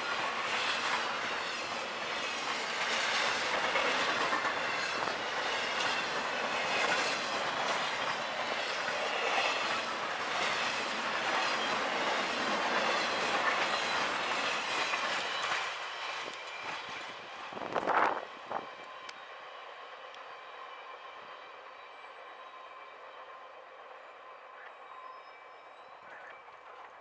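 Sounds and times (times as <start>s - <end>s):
wheels clattering over rail joints: 0.0s - 17.0s
freight train rolling rumble: 0.0s - 27.0s.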